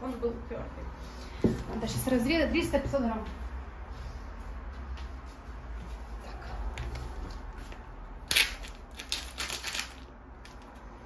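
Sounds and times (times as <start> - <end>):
plastic packet crinkling: 8.3 - 10.8.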